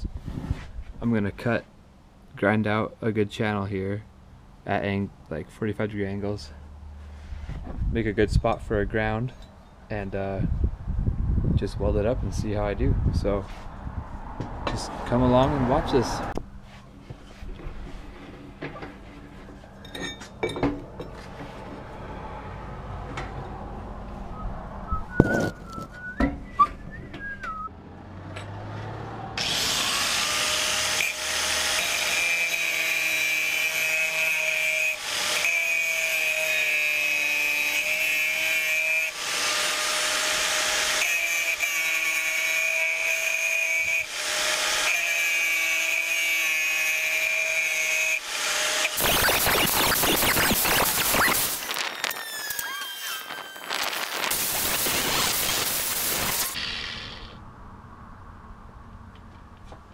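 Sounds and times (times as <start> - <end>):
angle grinder grinding steel: 29.4 - 57.4.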